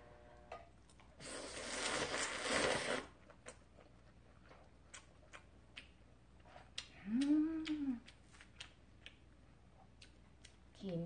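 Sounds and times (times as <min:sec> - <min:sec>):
person slurping noodles: 0:01.2 - 0:03.2
chewing with small clicks: 0:03.3 - 0:11.0.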